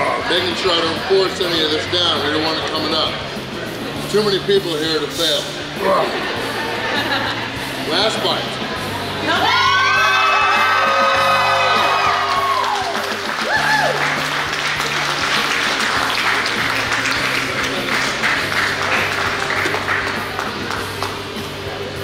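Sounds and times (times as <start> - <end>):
background music: 0.0 - 22.0
crowd cheering and whooping: 9.3 - 14.4
crowd clapping: 11.4 - 21.6.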